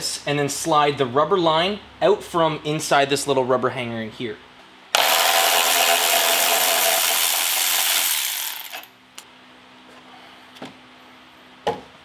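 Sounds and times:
electric ratchet whirring: 4.9 - 8.9.

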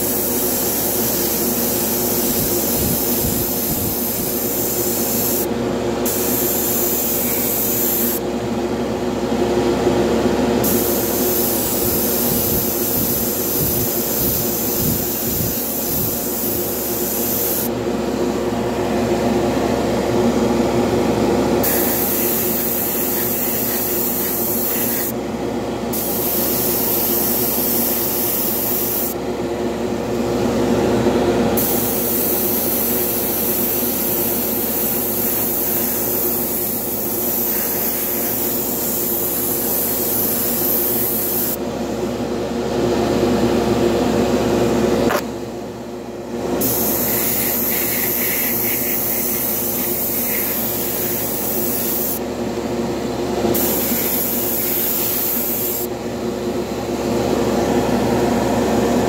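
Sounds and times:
airbrush hissing: 0.0 - 5.5, 6.1 - 8.2, 10.6 - 17.7, 21.6 - 25.2, 25.9 - 29.2, 31.6 - 41.6, 46.6 - 52.2, 53.6 - 55.9.

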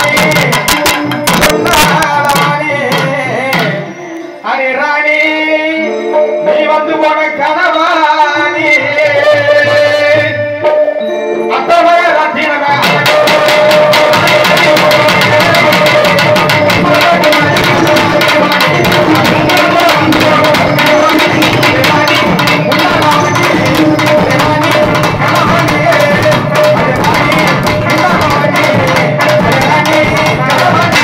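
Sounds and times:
fast hand-drumming: 0.0 - 3.8, 12.7 - 31.0
man singing over loudspeakers: 0.0 - 31.0.

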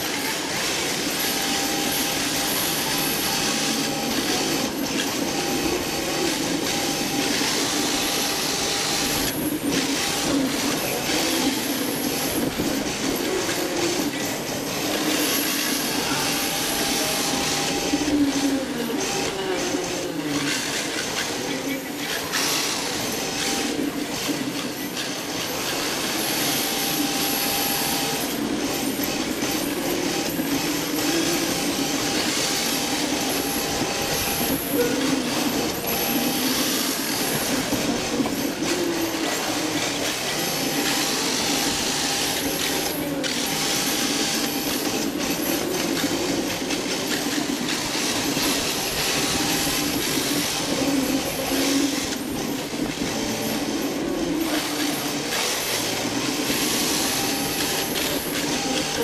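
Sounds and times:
electric motor whine: 0.0 - 59.0.

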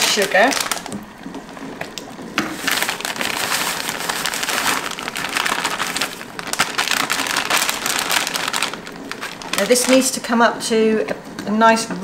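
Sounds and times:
paper bag crinkling: 0.0 - 1.0, 2.5 - 10.3.

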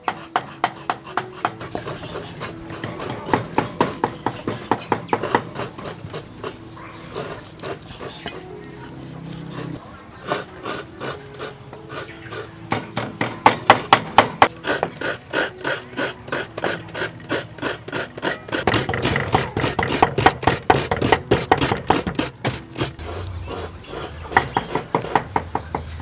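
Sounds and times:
cleaver chopping on wooden board: 0.0 - 6.6, 12.7 - 23.1, 23.9 - 26.0.

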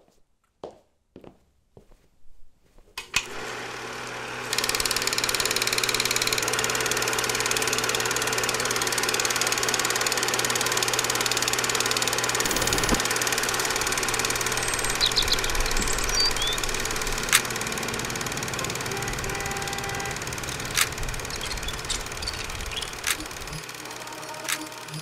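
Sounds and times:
projector motor running: 3.2 - 25.0
projector clicks: 4.5 - 25.0
projector fast even clatter: 12.2 - 23.8.

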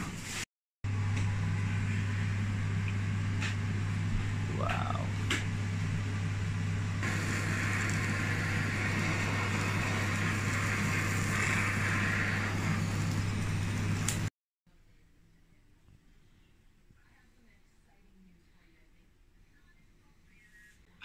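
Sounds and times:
blowtorch flame hissing: 7.0 - 14.3.

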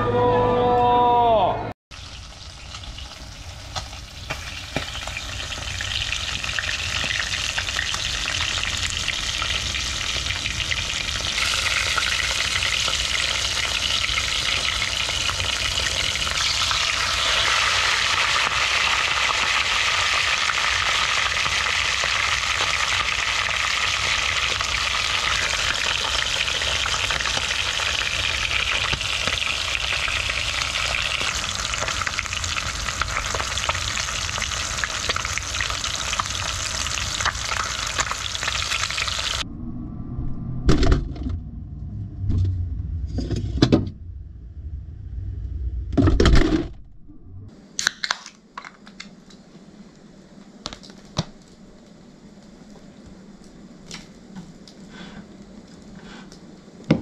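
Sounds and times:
hot oil bubbling and crackling: 1.9 - 39.4, 47.8 - 57.0.

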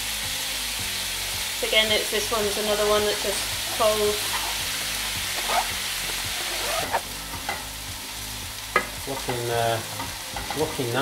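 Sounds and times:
stir-fry sizzling in a wok: 0.0 - 11.0.

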